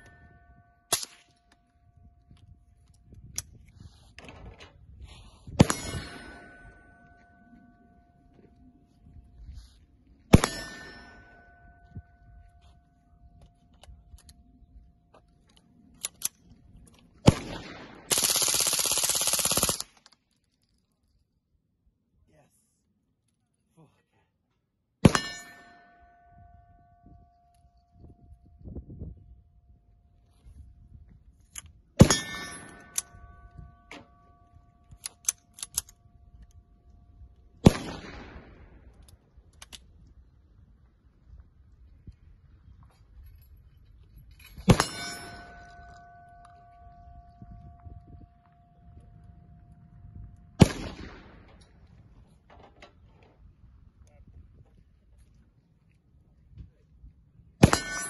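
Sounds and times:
rapid burst of gunfire: 17.4s - 19.9s
suppressed rifle shot: 37.6s - 38.6s, 50.6s - 51.6s.

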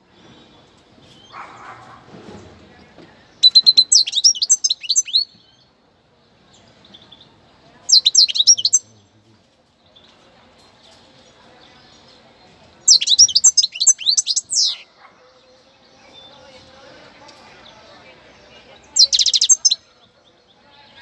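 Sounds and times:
goldfinch twittering song: 3.4s - 5.6s, 7.9s - 8.9s, 12.9s - 14.9s, 18.9s - 19.8s.

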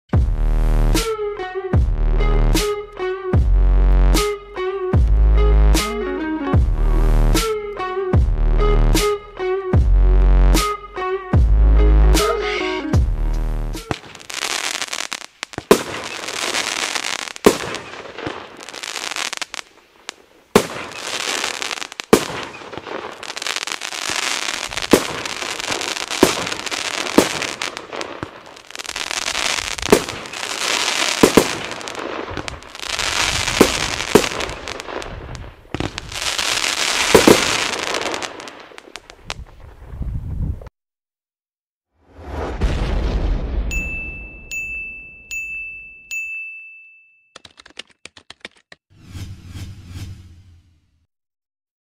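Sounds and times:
firework crackling: 13.8s - 39.7s
firework bangs: 13.8s - 39.9s, 42.1s - 44.2s.

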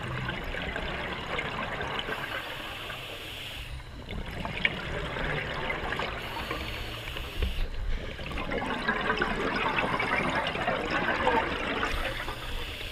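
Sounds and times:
underwater regulator bubbles: 3.8s - 12.9s.

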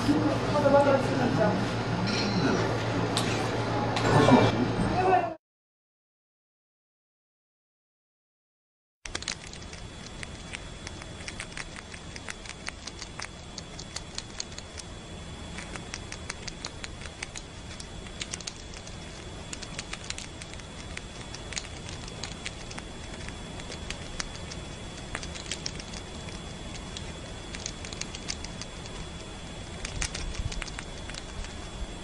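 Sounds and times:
squirrel chewing fruit: 9.1s - 32.0s.

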